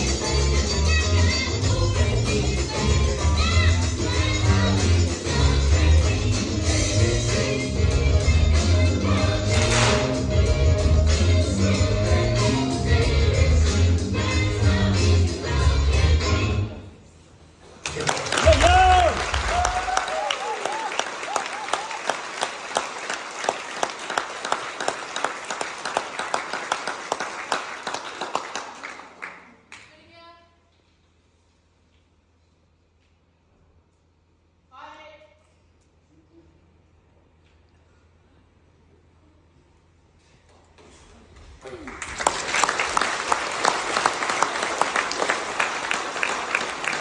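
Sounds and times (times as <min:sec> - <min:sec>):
loud rhythmic claps: 0:09.1 - 0:10.3, 0:17.8 - 0:30.0, 0:41.3 - 0:47.0
crowd of children applauding: 0:17.8 - 0:29.9, 0:41.6 - 0:47.0.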